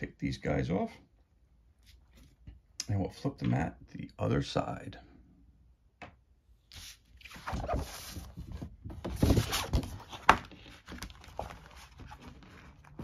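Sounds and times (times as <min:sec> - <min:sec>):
stiff game mat rustling: 0:06.8 - 0:13.0.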